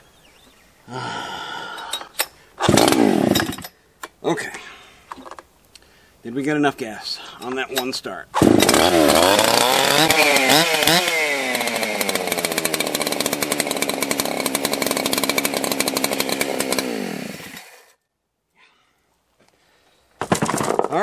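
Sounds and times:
chainsaw engine revving: 1.8 - 3.7, 8.4 - 18.0.

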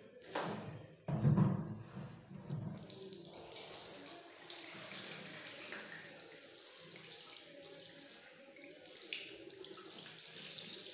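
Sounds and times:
tap water splashing into basin: 2.3 - 10.9.

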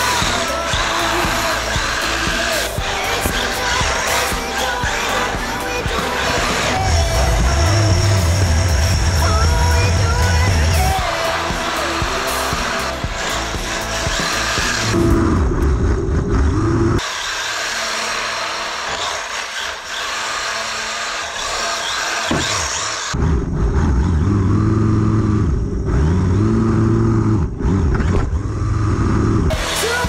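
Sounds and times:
electric toy car motor whining: 0.0 - 30.0.

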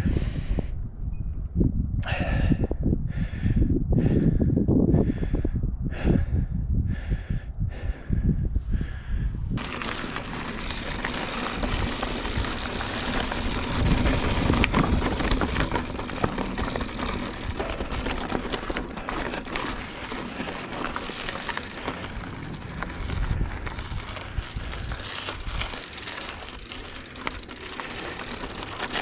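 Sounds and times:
low rumble: 7.7 - 25.8
bike clicks and rattles: 9.6 - 29.0
tyres crunching on gravel: 9.6 - 29.0.

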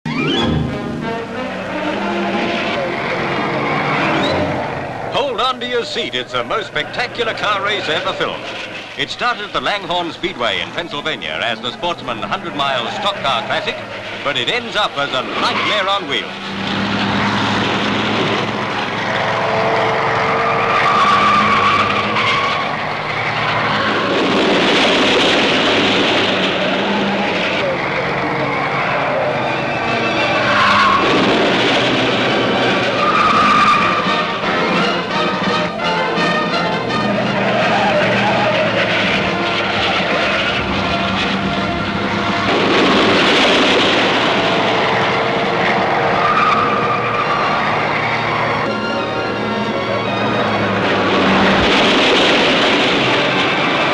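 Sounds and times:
held musical tone: 0.0 - 24.0, 32.2 - 42.7
race car engines running hard: 0.0 - 53.9
tyre squeal: 2.7 - 9.6, 12.2 - 24.2, 26.7 - 42.5, 44.1 - 51.7.

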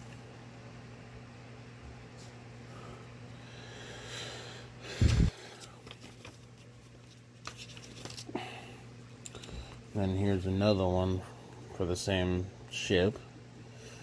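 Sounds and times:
paper banknotes rustling: 5.0 - 8.4.

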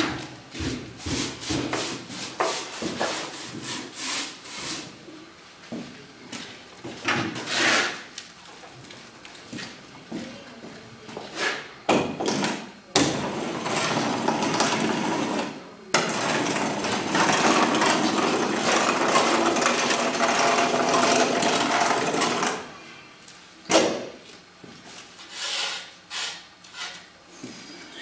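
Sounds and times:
power tool running: 13.6 - 22.7.

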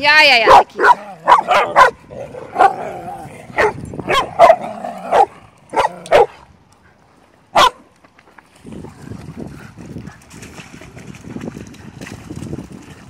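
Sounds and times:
dogs barking: 0.4 - 2.9, 3.5 - 6.4, 7.5 - 7.8.

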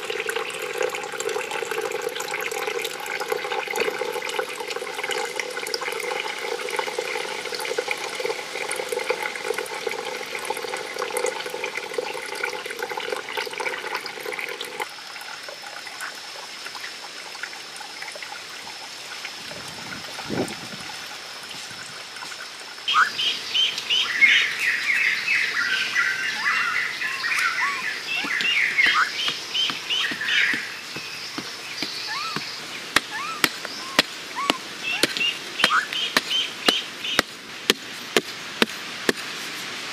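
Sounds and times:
water trickling into pond: 0.0 - 39.9
birds chirping: 22.8 - 37.3
tool digging into dry earth: 29.3 - 39.6.

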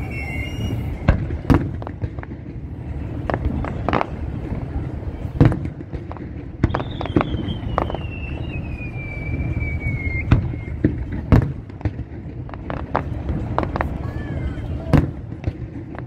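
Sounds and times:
descending firework whistle: 0.0 - 1.7, 6.5 - 11.7
fireworks bangs: 0.0 - 16.0.

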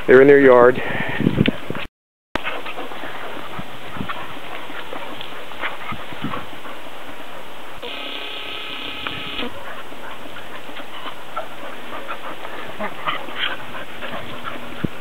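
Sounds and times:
dogs scuffling and clicking: 2.4 - 6.8, 9.6 - 15.0
steady high tone: 7.8 - 9.5.

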